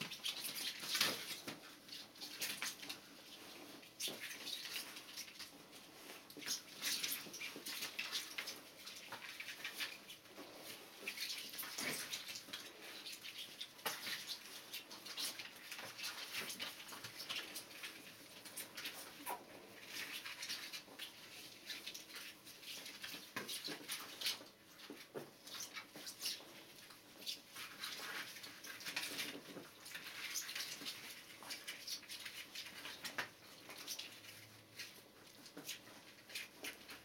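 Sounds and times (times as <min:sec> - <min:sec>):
paws scrabbling on bedding: 0:00.0 - 0:37.0.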